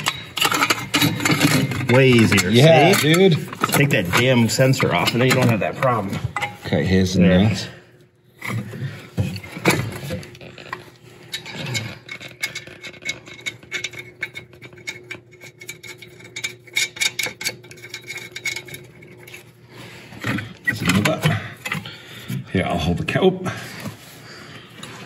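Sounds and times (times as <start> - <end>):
metallic clicks and scrapes of nuts: 0.0 - 6.6, 9.4 - 21.9.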